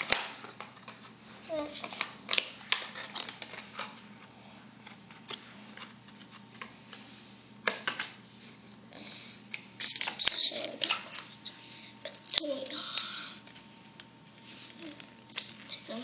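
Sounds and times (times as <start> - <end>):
plastic packaging crinkling: 1.7 - 6.5.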